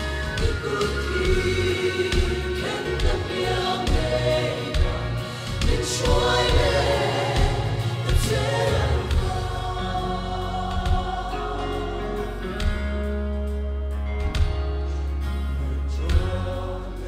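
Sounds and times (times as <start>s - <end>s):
mixed choir singing a hymn: 0.0s - 13.1s, 15.6s - 17.0s.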